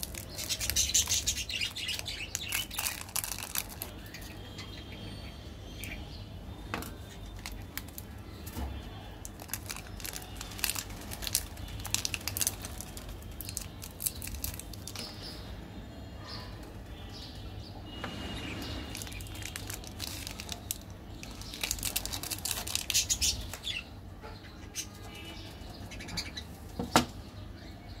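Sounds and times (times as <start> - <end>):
sweet wrappers crackling and rustling: 0.0 - 4.9, 6.8 - 15.5, 18.3 - 23.8.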